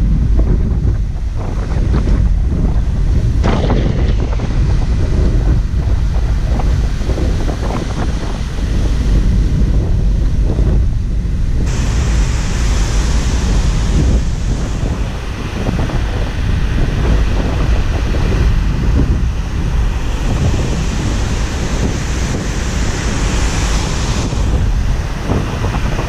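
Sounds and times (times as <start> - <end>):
wind buffeting the microphone: 0.0 - 26.0
steady hiss: 11.6 - 18.3.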